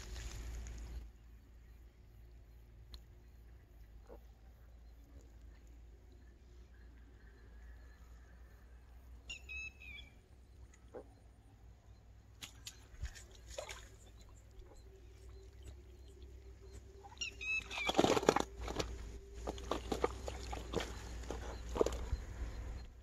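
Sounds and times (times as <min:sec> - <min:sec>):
fish splashing and thrashing: 0:00.0 - 0:01.0, 0:12.4 - 0:22.9
small bird chirping: 0:00.0 - 0:23.0.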